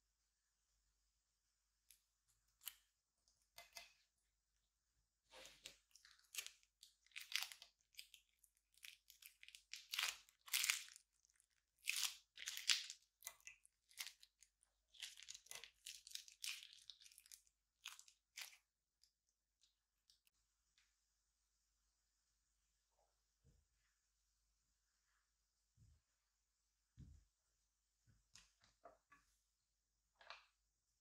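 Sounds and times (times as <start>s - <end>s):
plastic piping bag crinkling: 5.4s - 18.6s.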